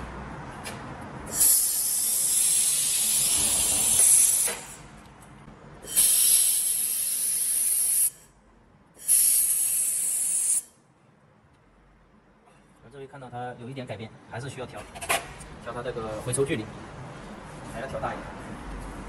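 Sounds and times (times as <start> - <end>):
laser welder hissing: 1.3 - 4.9, 5.9 - 8.2, 9.0 - 10.7.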